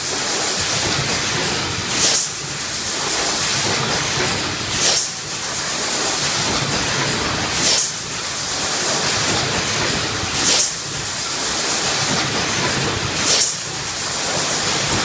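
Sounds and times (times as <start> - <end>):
steady machine noise: 0.0 - 15.0.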